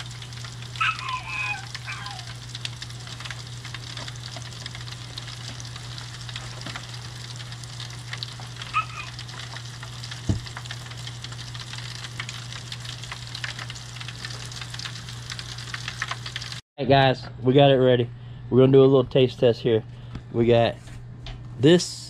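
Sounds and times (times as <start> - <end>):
fish frying in hot grease: 0.0 - 16.6.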